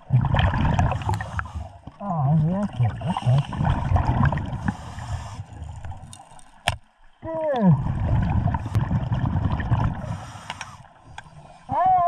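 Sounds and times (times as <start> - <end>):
diver's bubbles gurgling underwater: 0.0 - 4.9, 7.6 - 10.3.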